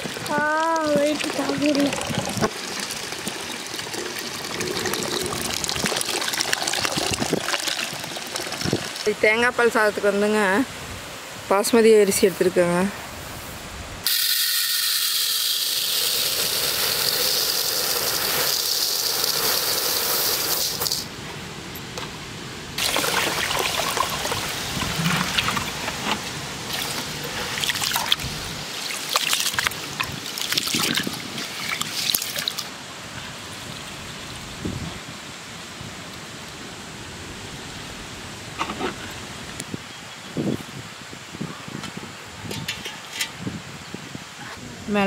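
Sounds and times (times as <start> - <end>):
water pouring into pot: 0.0 - 9.2, 14.1 - 21.0, 22.8 - 25.7.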